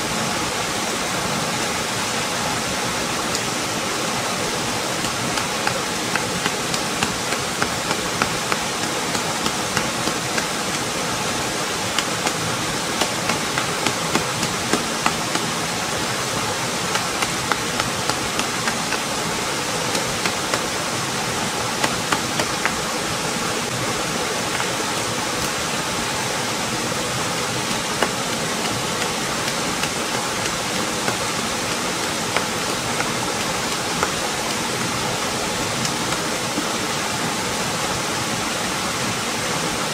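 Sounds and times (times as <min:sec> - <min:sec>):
small waterfall rushing into pool: 0:00.0 - 0:39.9.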